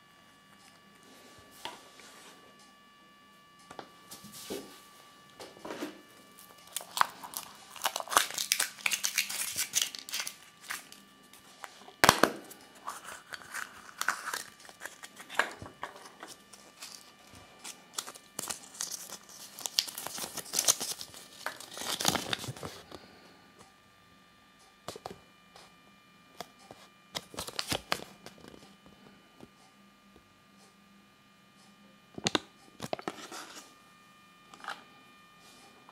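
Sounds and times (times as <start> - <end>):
foil wrapper crinkling and tearing: 6.4 - 22.8, 27.2 - 28.5
paper rustling: 6.5 - 11.8, 12.8 - 22.8.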